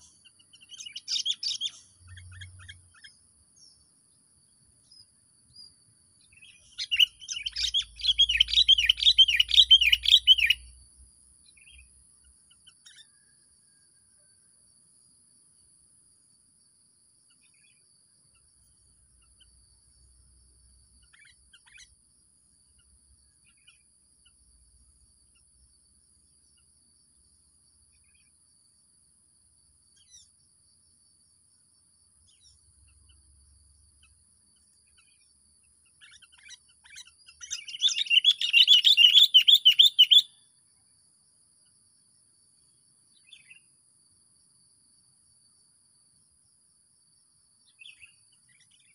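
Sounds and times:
songbird calling: 0.0 - 13.8, 17.3 - 19.7, 20.9 - 22.1, 22.7 - 24.6, 29.9 - 30.4, 32.2 - 40.6, 43.1 - 43.7, 47.6 - 48.9
rapid chattering birdsong: 36.0 - 40.3.

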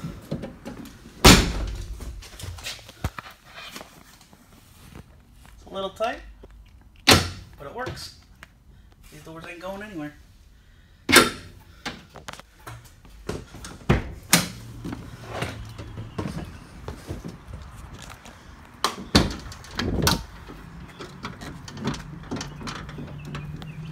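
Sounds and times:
van doors banging and clunking: 0.0 - 2.5, 7.0 - 8.1, 13.2 - 17.8, 18.8 - 23.9
door hardware knocks and rattles: 19.0 - 23.9.

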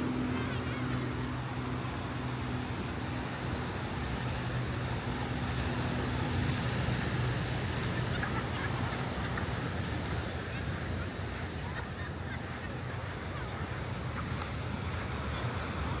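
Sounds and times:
surf: 0.0 - 16.0
traffic: 0.0 - 16.0.

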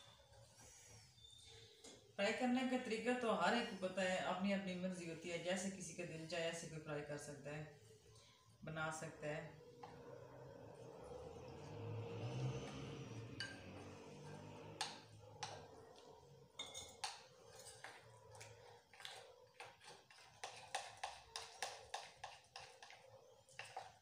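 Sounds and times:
metal spoon clinking glass bowl: 13.4 - 13.9, 16.6 - 18.0.

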